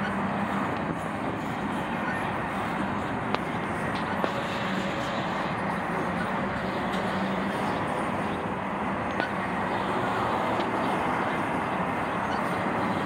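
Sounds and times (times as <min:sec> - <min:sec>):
freight train wheels rumbling on rails: 0:00.0 - 0:13.0.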